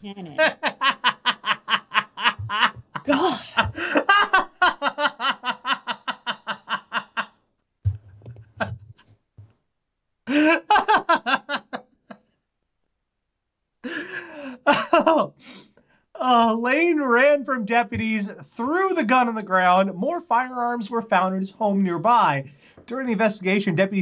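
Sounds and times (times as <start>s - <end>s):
person laughing: 0.3s - 9.0s, 10.3s - 12.2s, 13.8s - 15.3s.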